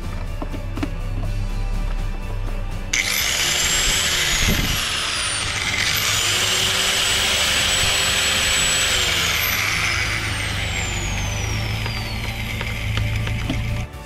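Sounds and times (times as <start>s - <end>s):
angle grinder whining: 2.9s - 13.9s.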